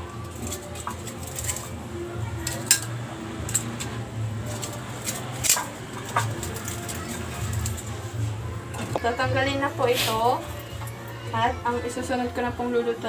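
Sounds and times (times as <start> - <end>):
food crackling in frying oil: 0.0 - 9.2
metal tongs clicking on dishes: 0.2 - 1.8, 2.4 - 8.0.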